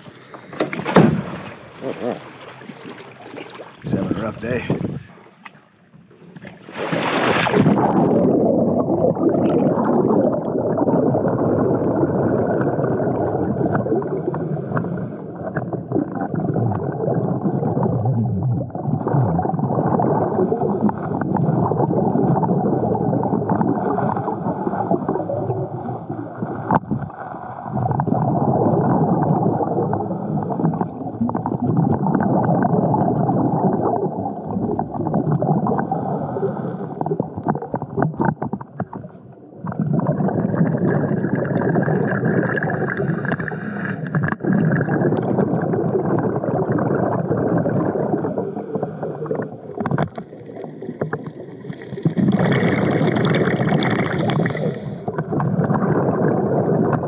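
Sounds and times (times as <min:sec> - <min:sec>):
underwater rushing and bubbling: 0:00.0 - 0:57.0.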